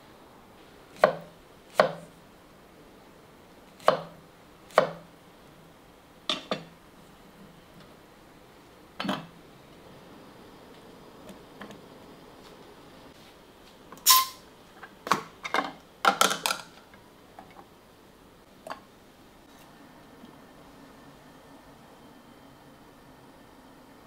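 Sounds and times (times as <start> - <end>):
kitchenware clinking and knocking: 6.3 - 6.7, 9.0 - 9.3, 15.1 - 16.7.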